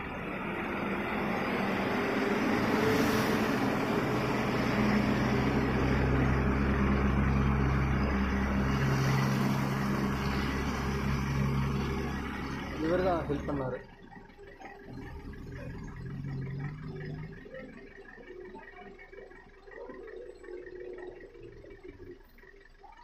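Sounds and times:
lorries passing: 0:00.0 - 0:22.6
diesel engines droning: 0:00.0 - 0:23.0.

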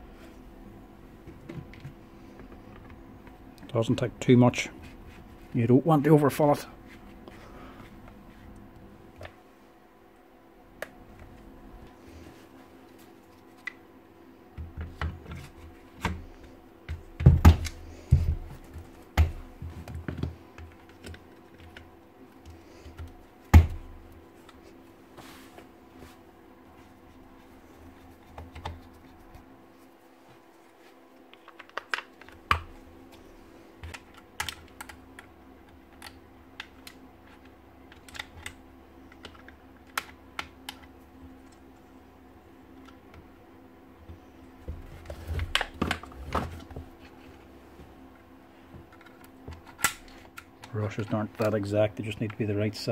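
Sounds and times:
faint steady hum: 0:00.0 - 0:52.9
plastic parts clicking and knocking: 0:31.3 - 0:32.8, 0:33.8 - 0:40.9.

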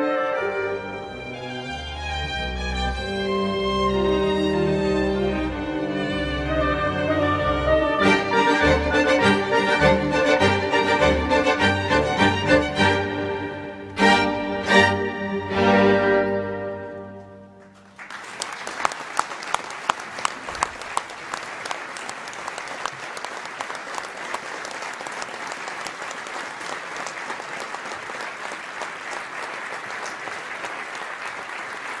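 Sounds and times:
audience applause: 0:17.8 - 0:32.0.

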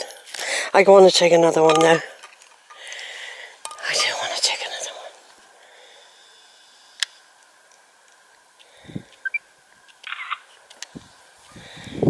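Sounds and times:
high chirps: 0:09.2 - 0:09.5.

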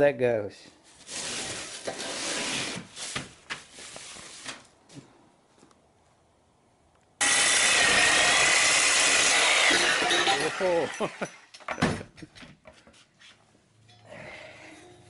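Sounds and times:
reciprocating saw cutting metal: 0:07.2 - 0:11.2.

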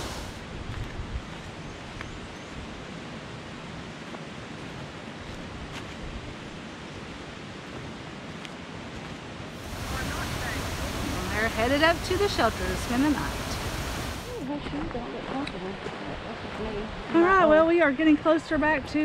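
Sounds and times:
rushing outdoor background: 0:00.0 - 0:01.9, 0:04.1 - 0:14.6.

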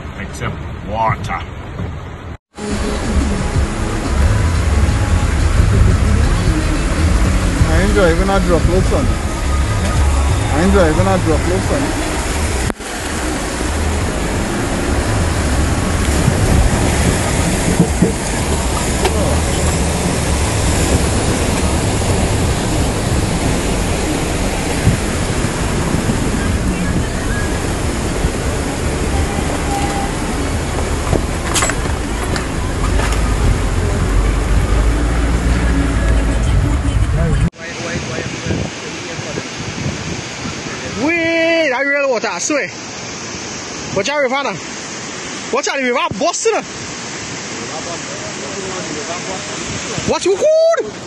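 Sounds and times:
floodwater rushing: 0:00.0 - 0:51.0
deep rumble: 0:02.6 - 0:37.5.

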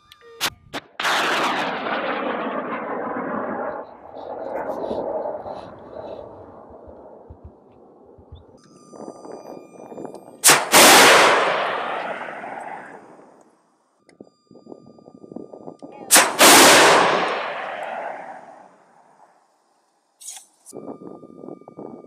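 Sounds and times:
missile launch pop: 0:01.0 - 0:03.7.

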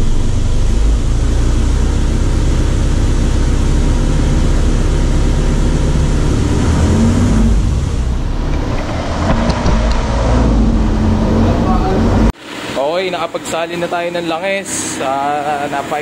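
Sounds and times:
car engine running: 0:00.0 - 0:12.4.

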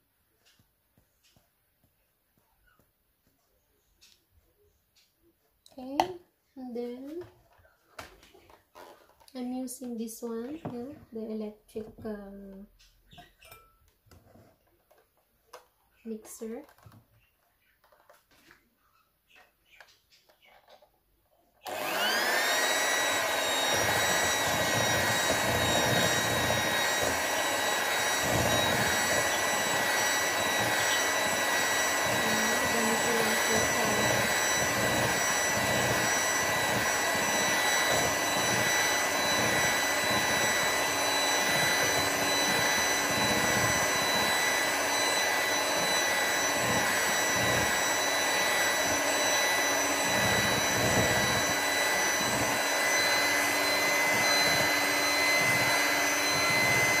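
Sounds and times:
electric hand mixer whirring: 0:08.7 - 0:11.3, 0:21.6 - 0:57.0.

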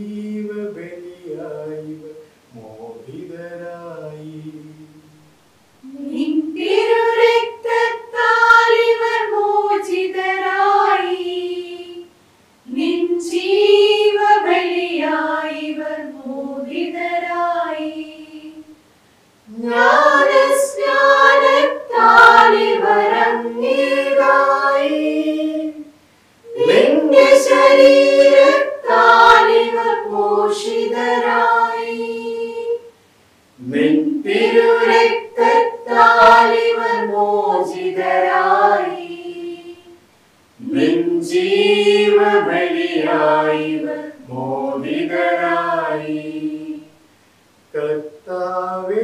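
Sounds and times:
choir singing a hymn unaccompanied: 0:00.0 - 0:05.2, 0:05.8 - 0:18.8, 0:19.5 - 0:32.9, 0:33.6 - 0:40.0, 0:40.6 - 0:47.0, 0:47.7 - 0:49.0.

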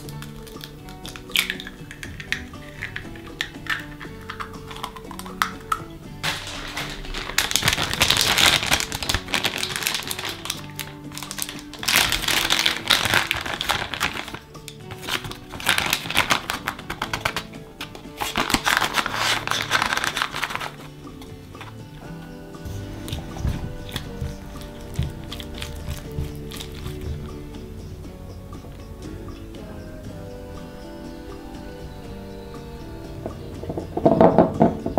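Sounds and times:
plastic bag crinkling: 0:00.0 - 0:21.8, 0:22.8 - 0:27.4
soft background music: 0:00.0 - 0:34.9.

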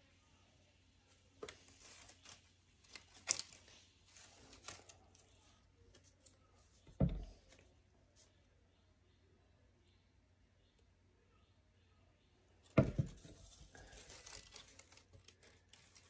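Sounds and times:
paper rustling and crackling: 0:01.4 - 0:08.3, 0:12.7 - 0:16.0
dull thump: 0:12.8 - 0:13.3.

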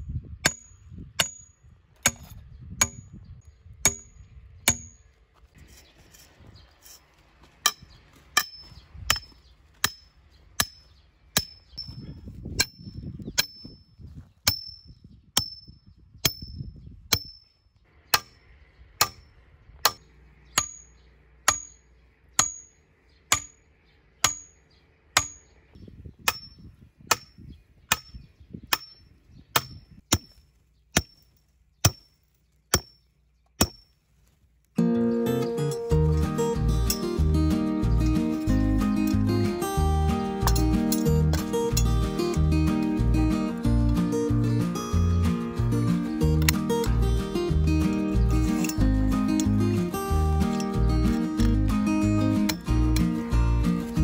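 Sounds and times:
hammer striking steel pipe: 0:40.4 - 0:41.9.

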